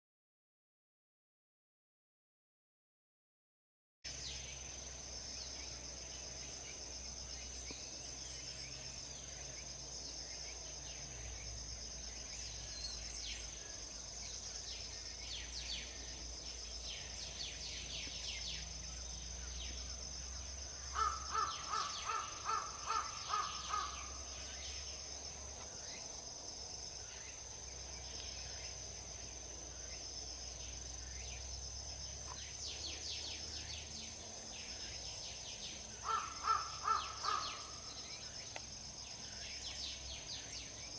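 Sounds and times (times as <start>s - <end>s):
small birds chirping: 4.1s - 40.9s
steady high hiss: 4.1s - 40.9s
crow cawing: 20.9s - 24.2s, 36.0s - 37.9s.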